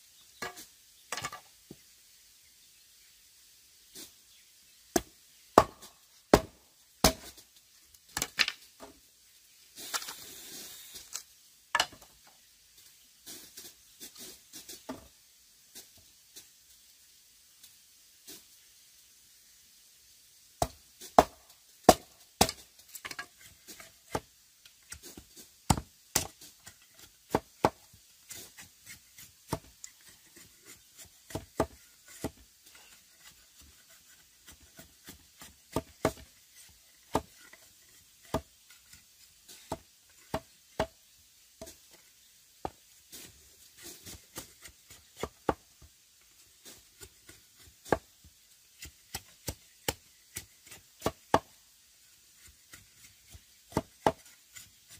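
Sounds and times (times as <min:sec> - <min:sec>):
blade chopping wood: 0:04.9 - 0:07.4, 0:20.6 - 0:23.2, 0:24.9 - 0:26.4, 0:27.0 - 0:29.8, 0:52.7 - 0:54.4.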